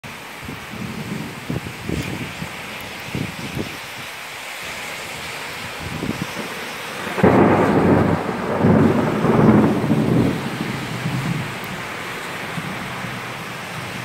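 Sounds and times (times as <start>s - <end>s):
heavy rain hissing: 0.0s - 14.0s
thunder clap rolling: 5.9s - 14.0s.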